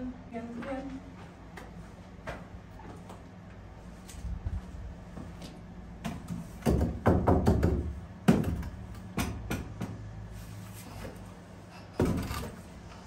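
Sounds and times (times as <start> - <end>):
objects knocking and clattering: 11.8 - 12.6.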